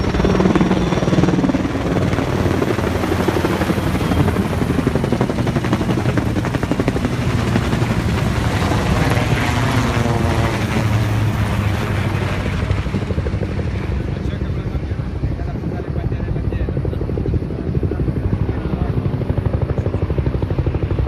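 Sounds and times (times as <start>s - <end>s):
helicopter engine drone: 0.0s - 21.0s
helicopter rotor blades chopping: 0.0s - 21.0s.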